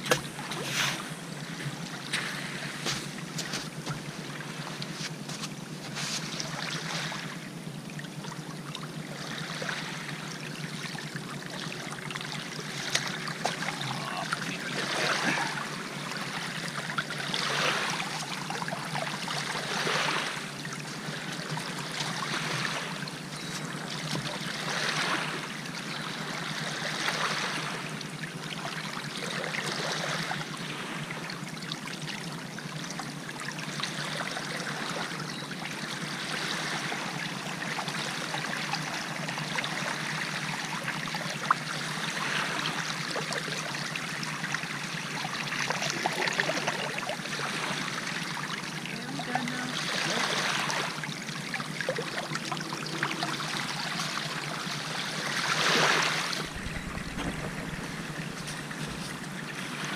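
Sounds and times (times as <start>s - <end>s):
shallow water trickling: 30.5s - 59.9s.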